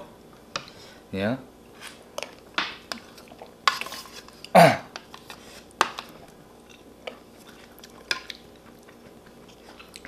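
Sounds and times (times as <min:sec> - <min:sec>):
chewing and mouth noises: 0:06.1 - 0:10.0.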